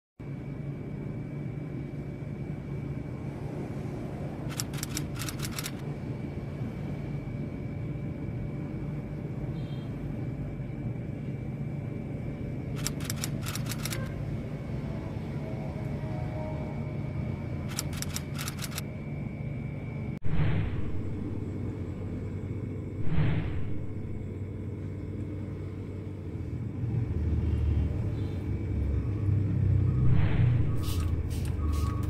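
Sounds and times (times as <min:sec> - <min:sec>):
low mechanical hum: 0:00.2 - 0:32.0
rapid clicking: 0:04.5 - 0:05.8, 0:12.8 - 0:14.1, 0:17.7 - 0:18.8.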